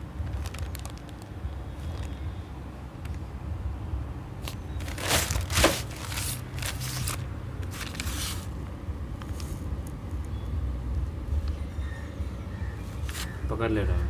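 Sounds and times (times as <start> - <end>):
plastic bag crinkling: 0.2 - 2.2, 4.4 - 8.5.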